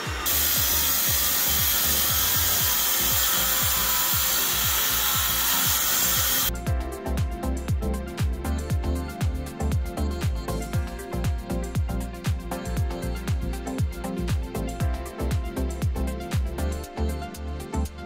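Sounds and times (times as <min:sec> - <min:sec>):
concrete saw grinding: 0:00.0 - 0:06.5.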